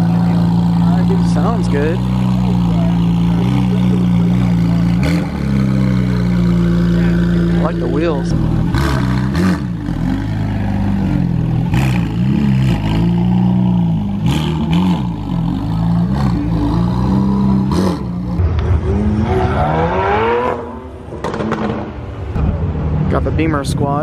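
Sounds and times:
car engines revving: 0.0 - 24.0
engine accelerating: 0.0 - 24.0.

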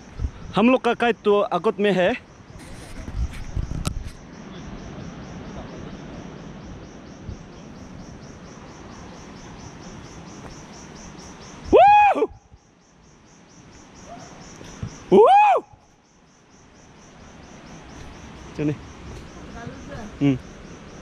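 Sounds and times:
insects chirping: 0.0 - 21.0
soft background rustle: 2.5 - 4.2.

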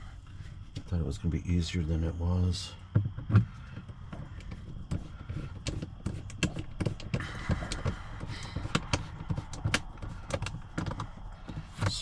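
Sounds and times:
plastic trim clicks and knocks: 5.5 - 12.0.

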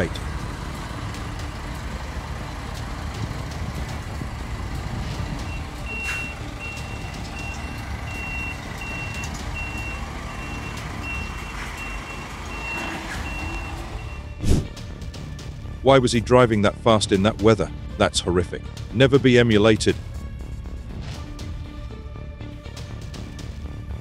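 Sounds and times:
truck reversing alarm beeping: 0.0 - 14.4
truck engine running: 0.0 - 17.8.

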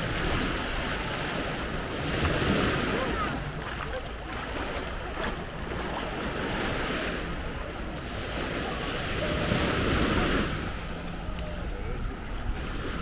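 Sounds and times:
sea surf washing onto beach: 0.0 - 13.0
wind rumbling on microphone: 0.0 - 13.0.

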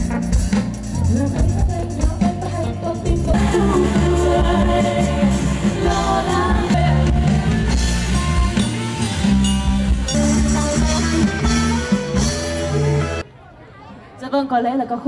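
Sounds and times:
pop-rock band playing: 0.0 - 13.2
woman singing: 1.0 - 7.7.

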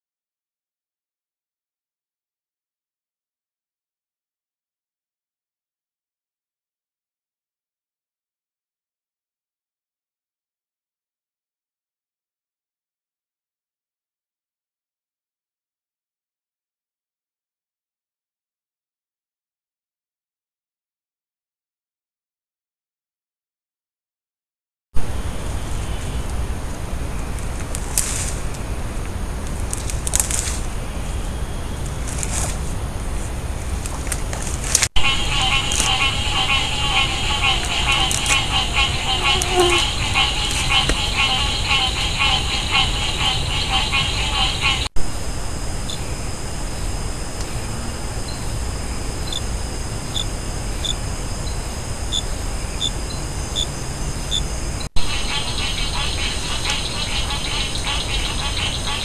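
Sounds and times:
faint high whine: 25.0 - 59.0
low rumbling noise: 25.0 - 59.0
dry vegetation crunching: 27.4 - 28.6, 29.4 - 30.8, 31.8 - 34.9
small animal chirping: 35.0 - 44.8.

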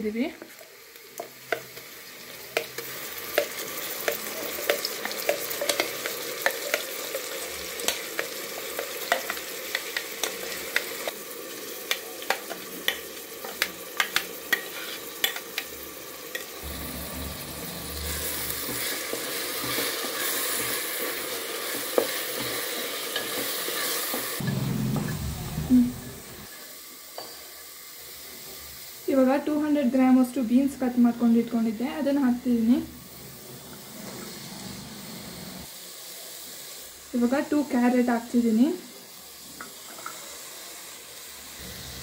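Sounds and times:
masala frying in hot oil: 0.0 - 24.7, 25.7 - 42.0
utensil scraping a pot: 14.5 - 15.4.

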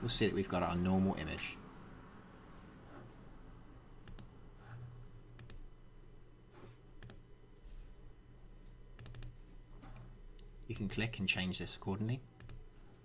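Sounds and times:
faint low hum: 0.0 - 13.0
computer mouse clicks: 4.0 - 4.3, 5.4 - 5.6, 7.0 - 7.2, 9.0 - 9.3, 12.4 - 12.6.

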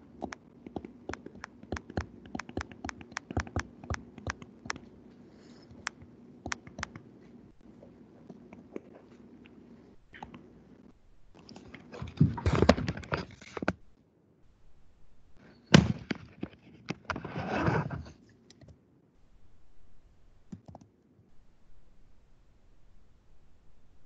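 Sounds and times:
knocks and clicks: 0.2 - 4.8.

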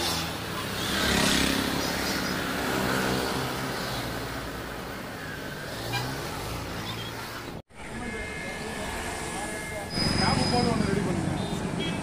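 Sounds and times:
motorcycle passing close: 0.0 - 4.2.

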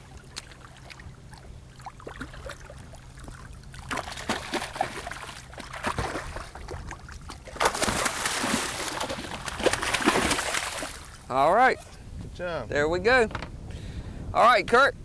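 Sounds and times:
water splashing at boat side: 0.0 - 11.3
fish thrashing at surface: 3.8 - 11.2.

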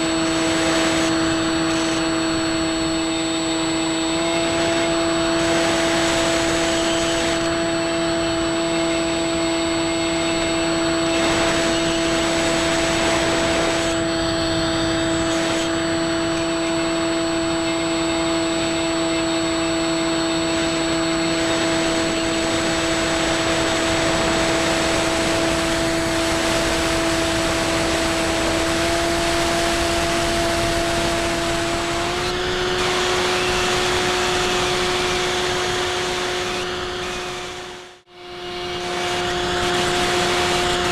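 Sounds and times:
electric motor whine: 0.0 - 40.9.

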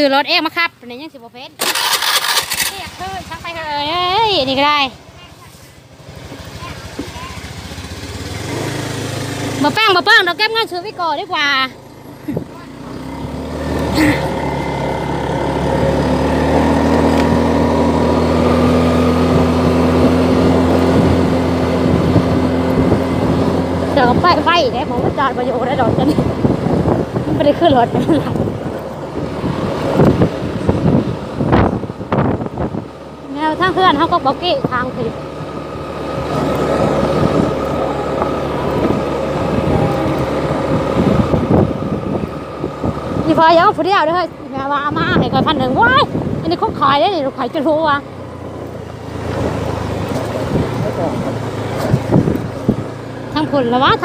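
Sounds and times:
small vehicle engine running: 0.0 - 54.0.

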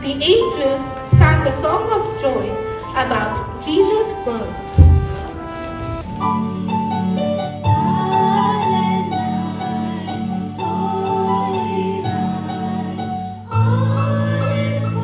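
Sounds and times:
keyboard christmas music: 0.0 - 15.0.

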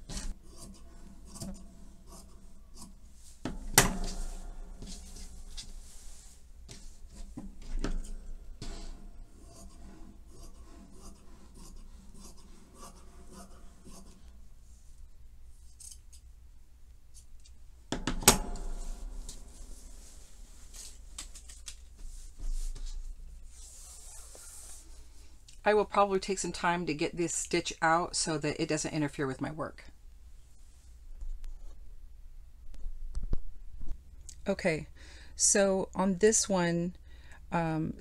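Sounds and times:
fabric rustling: 0.0 - 7.8, 18.6 - 25.3.

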